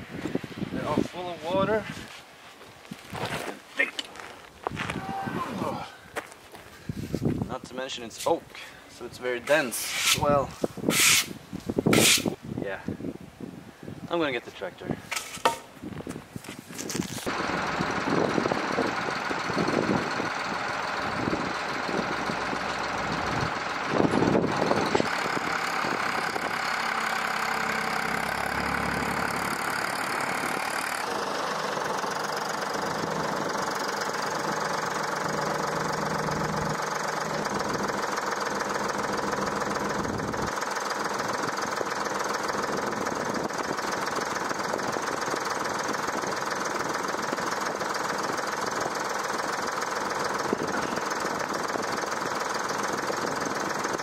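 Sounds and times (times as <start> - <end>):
diesel engine running: 17.0 - 54.0.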